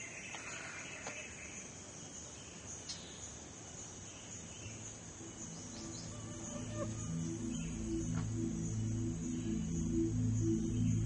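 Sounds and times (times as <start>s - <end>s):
insects droning: 0.0s - 11.0s
music: 5.2s - 11.0s.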